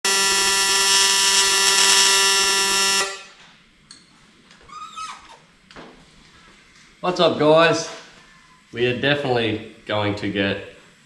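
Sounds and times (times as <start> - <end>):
welding arc buzzing: 0.0 - 3.4.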